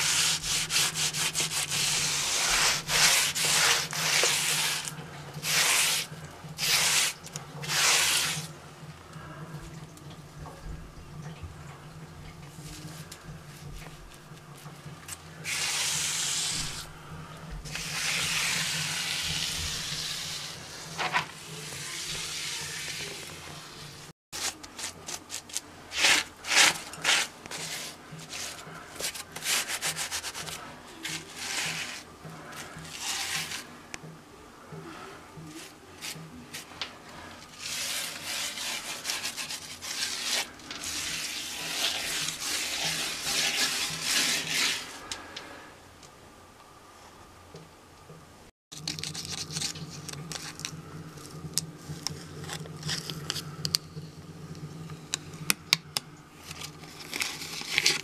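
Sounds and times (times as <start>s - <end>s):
sponge rubbing on cement mortar: 0.0s - 8.5s, 15.4s - 16.9s, 17.7s - 21.0s, 25.9s - 32.1s, 32.7s - 33.7s, 37.5s - 45.0s.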